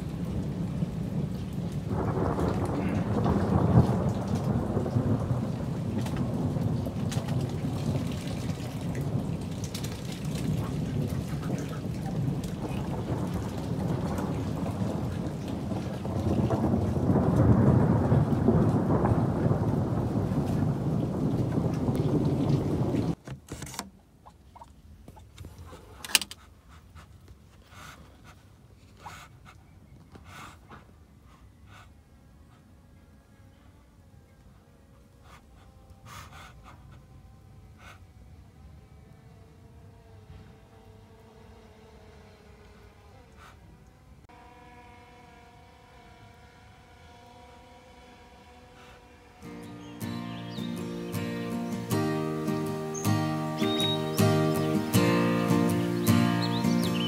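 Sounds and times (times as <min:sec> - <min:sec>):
heavy rain falling: 0:00.0 - 0:23.2, 0:49.4 - 0:57.0
raindrop ticks: 0:00.0 - 0:23.2
rolling thunder rumble: 0:00.0 - 0:23.2, 0:49.3 - 0:57.0
ducks hissing: 0:25.6 - 0:29.6, 0:30.2 - 0:32.7, 0:42.7 - 0:43.7, 0:48.6 - 0:57.0.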